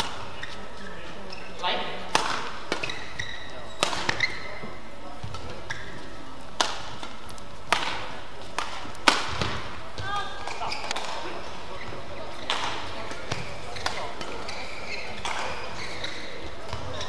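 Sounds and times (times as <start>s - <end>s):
shoes squeaking on court: 0.0s - 7.7s, 8.4s - 17.0s
racket striking shuttlecock: 2.1s - 4.5s, 5.2s - 11.3s, 12.4s - 17.0s.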